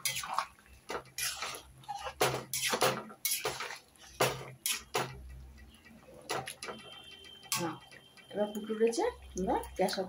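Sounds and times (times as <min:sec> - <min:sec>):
metal spatula scraping pan: 0:00.0 - 0:05.3.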